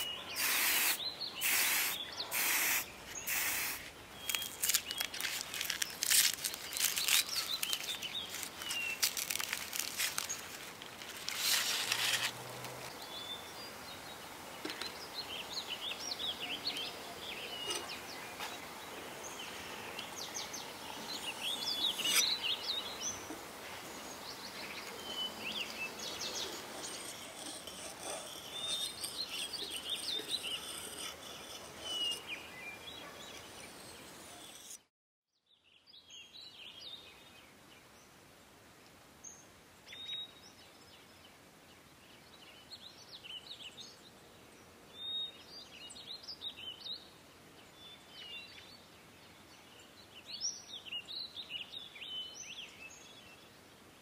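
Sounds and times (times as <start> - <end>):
small birds chirping: 0.0 - 12.2, 12.9 - 34.9
outdoor background noise: 0.0 - 54.0.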